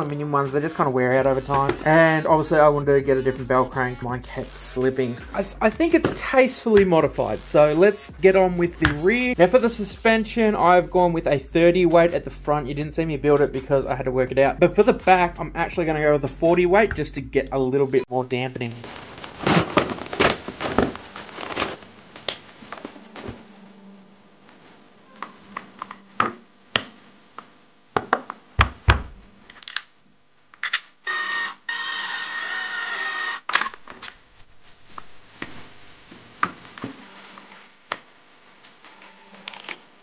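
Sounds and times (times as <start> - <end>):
high-pitched whir: 31.0 - 33.5.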